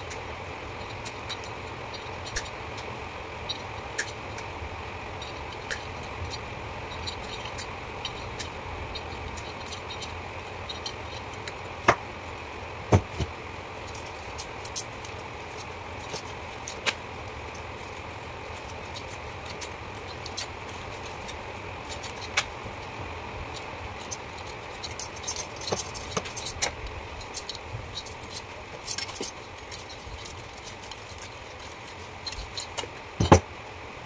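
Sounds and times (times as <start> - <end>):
background hum: 0.0 - 34.0
sharp knocks: 12.9 - 13.3.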